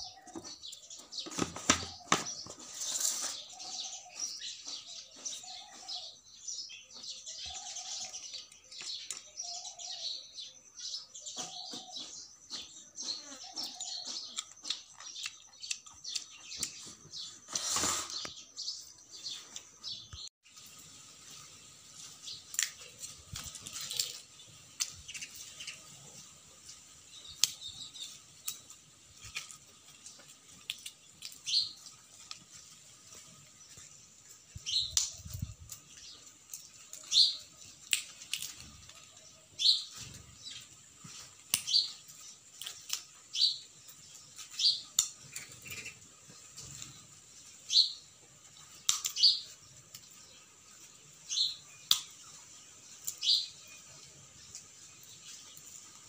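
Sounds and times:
sparrows chirping: 0:00.0 - 0:56.0
peanut shells clicking: 0:37.8 - 0:39.0, 0:42.5 - 0:43.1, 0:48.8 - 0:49.2, 0:51.8 - 0:52.2.

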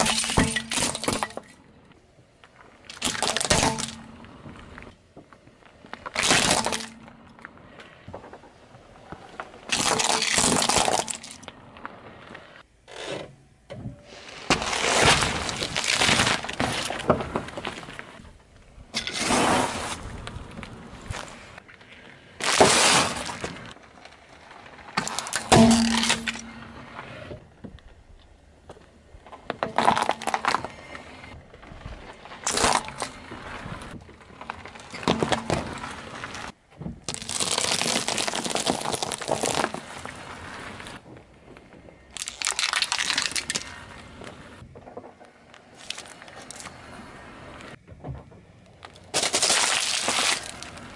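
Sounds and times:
tyre crushing objects: 0:05.8 - 0:07.2, 0:14.2 - 0:18.2, 0:22.4 - 0:23.8, 0:24.8 - 0:27.0, 0:29.5 - 0:30.9, 0:32.3 - 0:41.0, 0:48.8 - 0:50.9.

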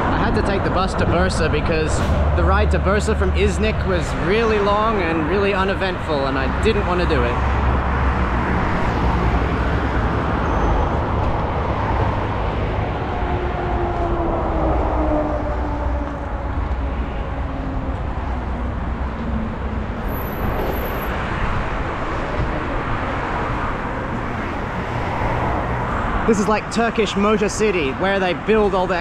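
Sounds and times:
passing vehicle drone: 0:00.0 - 0:28.2
road traffic noise: 0:00.0 - 0:29.0
wind rumble on microphone: 0:07.2 - 0:26.3.

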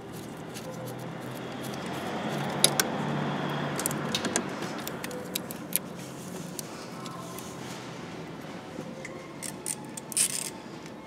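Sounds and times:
wrench clinking and scraping: 0:09.4 - 0:10.6.

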